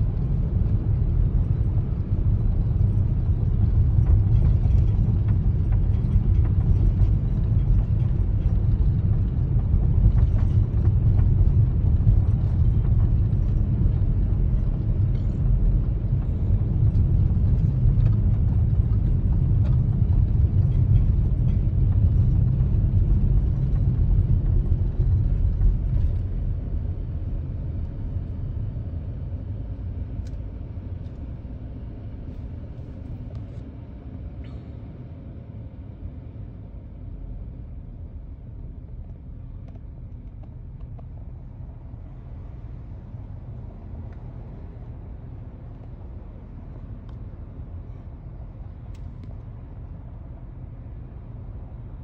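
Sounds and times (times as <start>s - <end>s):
car cabin rumble: 0.0s - 28.4s.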